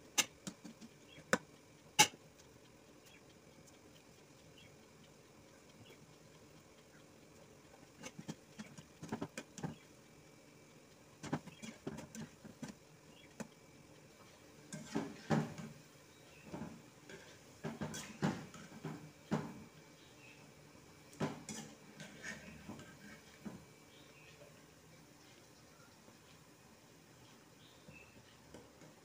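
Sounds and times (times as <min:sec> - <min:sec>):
oil sizzling: 0:04.9 - 0:24.8
metal spoon scraping a pan: 0:08.0 - 0:09.8, 0:11.2 - 0:12.8, 0:14.7 - 0:15.8, 0:17.1 - 0:19.0, 0:21.3 - 0:23.4.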